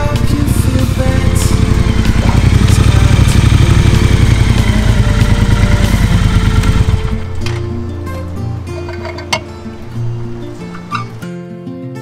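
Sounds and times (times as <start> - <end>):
motorcycle engine idling: 0.0 - 7.8.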